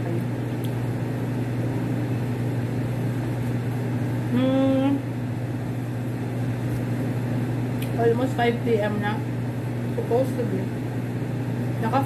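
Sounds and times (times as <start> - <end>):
machine humming: 0.0 - 12.0
woman humming while chewing: 4.2 - 5.1.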